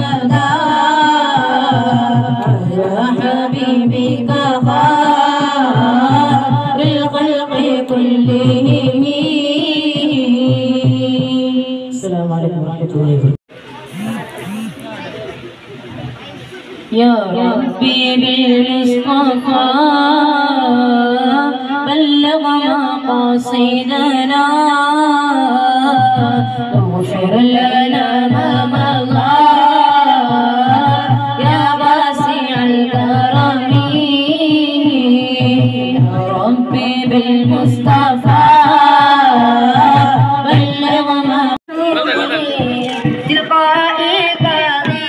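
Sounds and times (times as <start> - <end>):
boys singing into microphones: 0.0 - 12.0, 16.8 - 45.0
low regular beat: 13.8 - 16.8.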